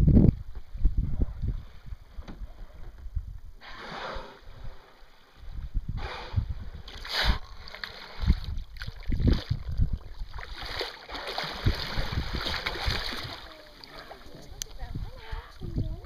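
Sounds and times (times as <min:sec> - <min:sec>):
wind buffeting microphone: 0:00.0 - 0:03.6, 0:04.2 - 0:10.8, 0:11.4 - 0:16.0
seawater sloshing: 0:06.8 - 0:16.0.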